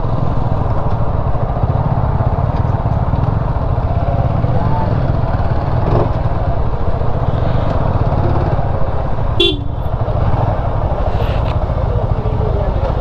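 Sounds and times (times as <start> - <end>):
motorcycle engine running: 0.0 - 13.0
short horn toot: 9.4 - 9.8.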